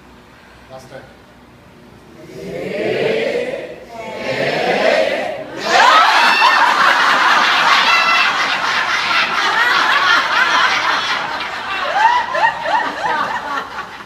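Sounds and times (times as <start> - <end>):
group of people laughing: 5.5 - 14.0.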